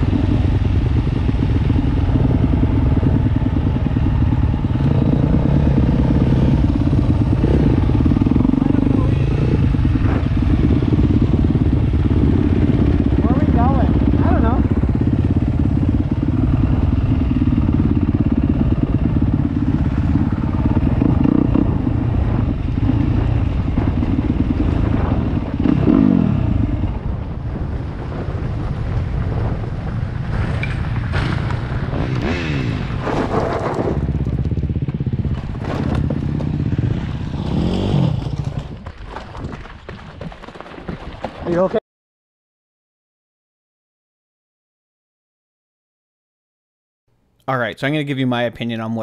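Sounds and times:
dirt bike engine running: 0:00.0 - 0:41.8
tyres crunching on gravel: 0:38.1 - 0:41.8.

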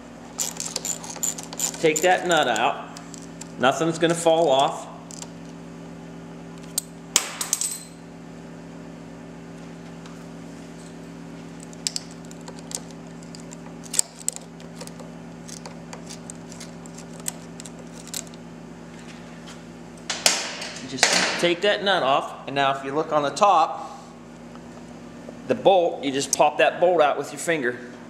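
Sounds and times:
steady low hum: 0:00.0 - 0:28.0
ratchet clicking: 0:00.4 - 0:03.6.

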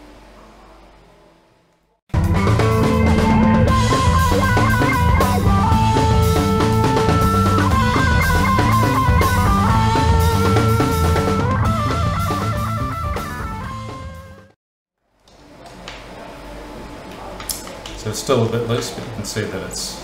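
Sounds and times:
rock music with guitar and drums: 0:02.2 - 0:14.6.

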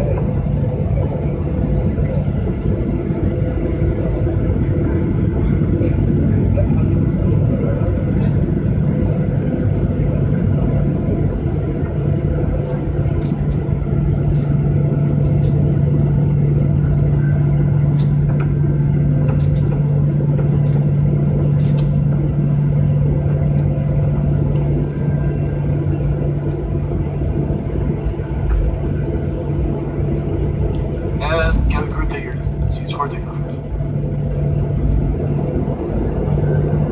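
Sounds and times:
jet engine hum in cabin: 0:00.0 - 0:36.9
airframe and wheels rumble: 0:04.3 - 0:36.9.

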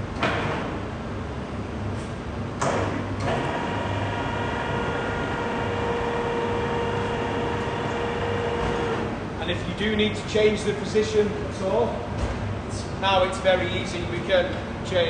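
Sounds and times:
hoist motor whining: 0:02.6 - 0:09.2.

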